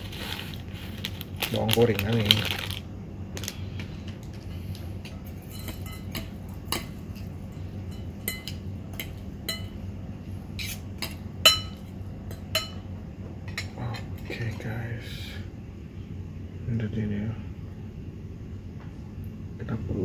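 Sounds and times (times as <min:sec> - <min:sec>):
cutlery clinking on ceramic bowl: 0:05.4 - 0:07.2, 0:07.9 - 0:09.8, 0:10.6 - 0:12.8.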